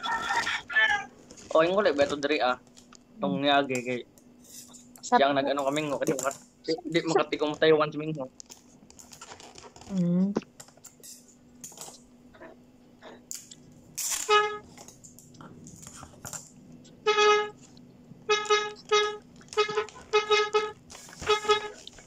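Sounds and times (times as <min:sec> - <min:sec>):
toy horn tooting: 0:14.0 - 0:14.8, 0:17.0 - 0:22.0.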